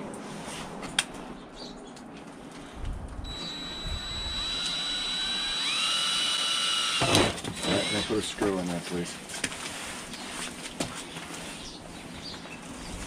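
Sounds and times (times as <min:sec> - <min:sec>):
cordless drill motor whining: 0:03.2 - 0:08.4.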